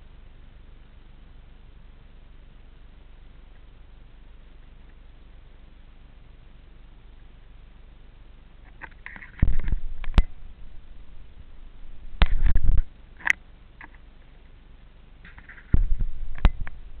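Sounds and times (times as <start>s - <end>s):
camera handling rumble: 8.6s - 14.0s, 15.2s - 17.0s.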